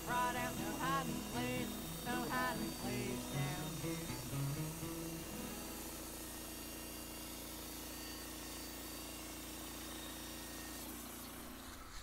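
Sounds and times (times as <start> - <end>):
band blade cutting log: 0.0 - 12.0
bandsaw mill engine humming: 0.0 - 12.0.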